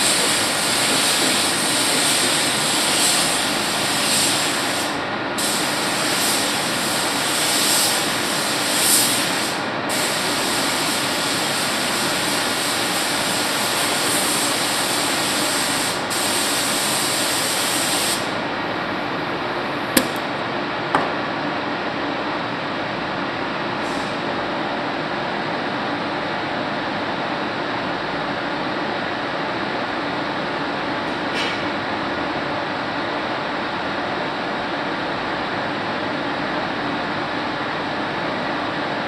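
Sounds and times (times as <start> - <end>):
paint spray gun hissing: 0.0 - 18.4.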